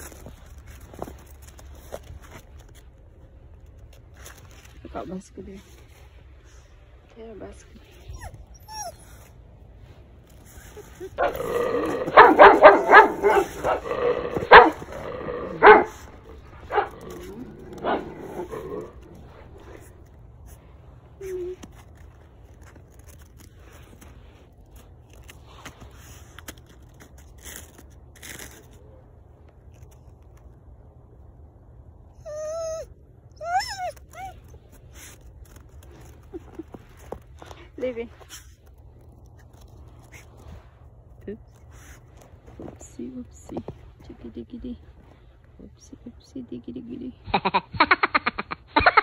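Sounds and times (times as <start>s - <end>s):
dog whining: 8.0s - 9.4s, 32.2s - 35.2s
dog barking: 11.2s - 17.0s.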